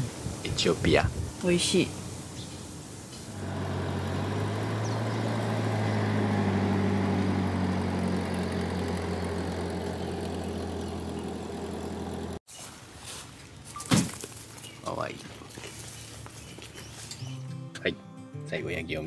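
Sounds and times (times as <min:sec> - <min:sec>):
engine idling: 0:03.2 - 0:12.4.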